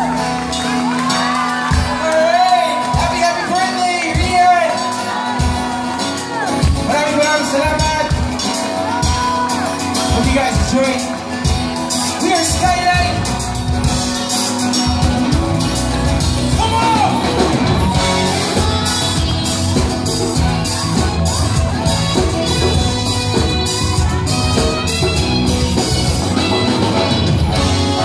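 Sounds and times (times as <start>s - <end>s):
voices singing and shouting: 0.0s - 6.9s, 16.1s - 26.3s
live pop-rock band: 0.0s - 28.0s
saxophone: 17.9s - 28.0s.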